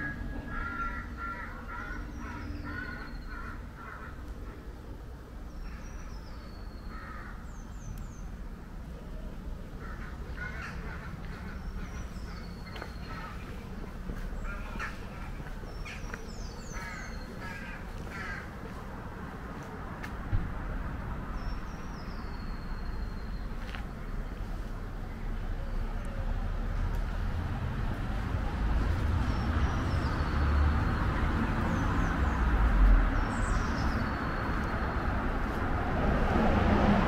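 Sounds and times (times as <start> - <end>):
crows cawing: 0.0 - 4.6, 6.9 - 7.4, 9.8 - 13.5, 14.4 - 18.8.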